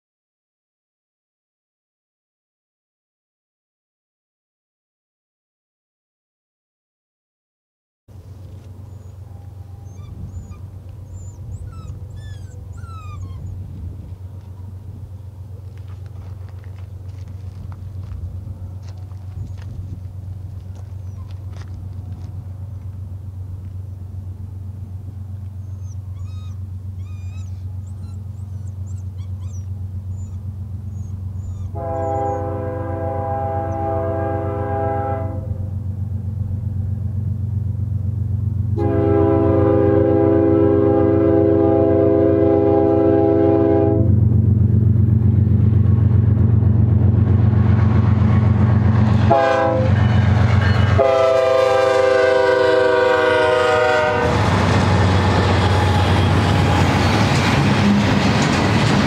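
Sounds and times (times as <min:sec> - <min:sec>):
train wheel noise: 0:08.1 - 0:40.2, 0:43.8 - 0:59.0
diesel locomotive engines drumming: 0:08.1 - 0:59.0
train chord horn blasts: 0:31.7 - 0:35.8, 0:38.7 - 0:44.3, 0:49.1 - 0:57.0.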